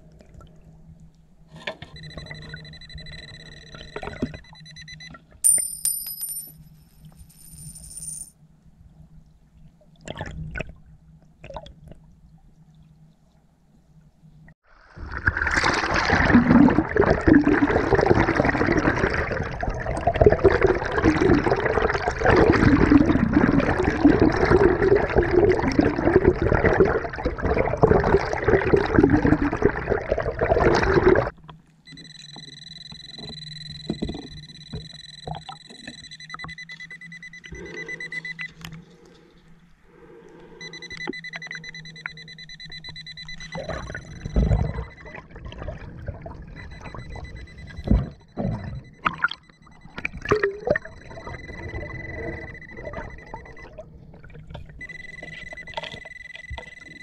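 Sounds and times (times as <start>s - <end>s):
metal detector electronic tone: 1.9s - 6.5s, 31.9s - 38.7s, 40.6s - 45.3s, 46.5s - 53.8s, 54.8s - 57.0s
underwater rushing and bubbling water: 9.6s - 13.5s, 14.6s - 57.0s.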